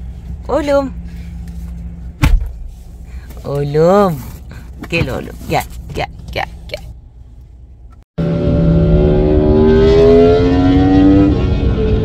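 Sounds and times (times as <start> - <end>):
car engine accelerating: 8.2 - 12.0.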